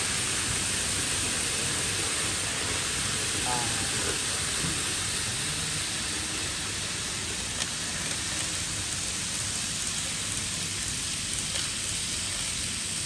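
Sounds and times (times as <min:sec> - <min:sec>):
model trains running on track: 0:00.0 - 0:13.0.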